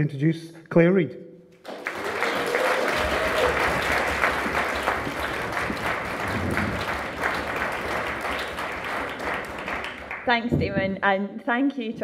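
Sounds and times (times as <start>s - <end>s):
audience applauding: 1.6s - 10.4s.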